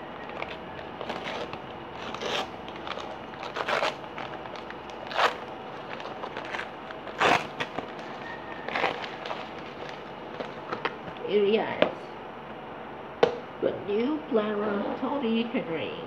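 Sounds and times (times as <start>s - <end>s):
wrapping crinkling and tearing: 0.0s - 11.2s.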